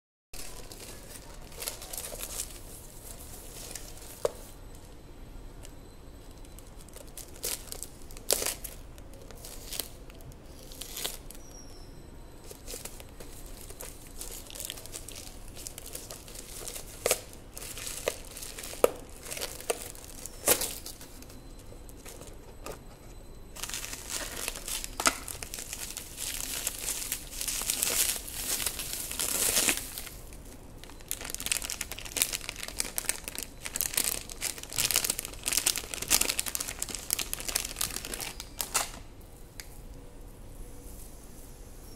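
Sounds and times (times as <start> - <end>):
plastic mailer bag crinkling: 0.4 - 4.5, 6.4 - 11.5, 12.4 - 22.9, 23.6 - 39.0
bubble wrap crinkling: 0.4 - 4.6, 6.2 - 11.6, 12.4 - 39.0
plastic bag tearing: 12.5 - 21.1, 23.6 - 39.0.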